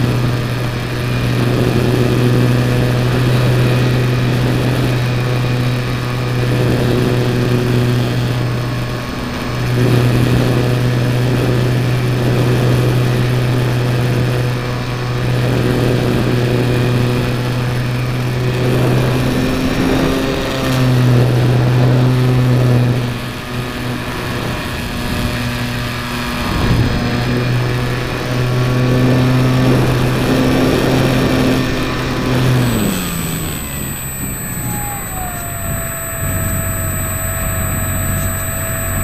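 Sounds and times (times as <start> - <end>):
model plane motor droning: 28.4 - 39.0.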